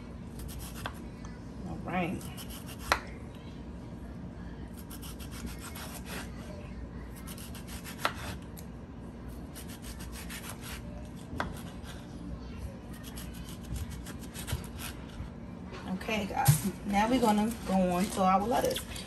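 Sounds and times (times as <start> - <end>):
knife sawing through tomato: 7.3 - 8.4, 9.6 - 10.8.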